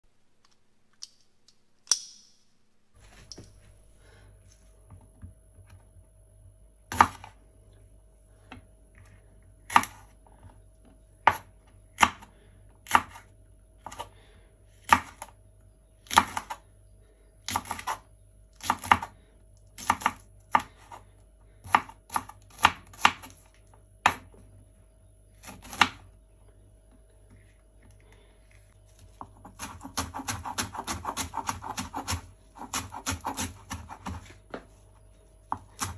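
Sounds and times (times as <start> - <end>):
knife chopping on wooden board: 29.2 - 34.4, 35.5 - 35.9.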